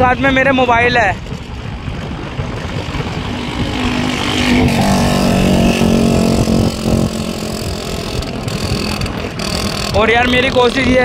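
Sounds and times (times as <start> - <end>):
wind rumble on microphone: 0.0 - 11.0
scooter engine hum: 1.2 - 11.0.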